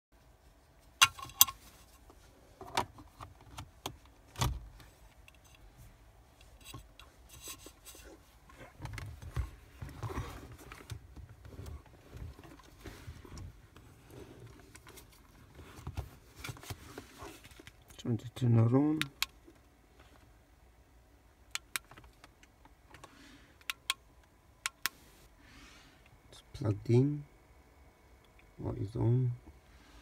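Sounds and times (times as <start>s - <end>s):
rustling and fumbling: 0.7s - 17.9s.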